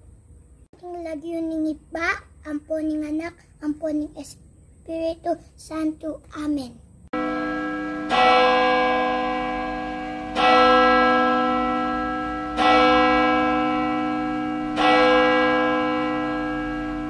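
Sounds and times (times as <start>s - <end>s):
bell tolling: 7.2s - 17.0s.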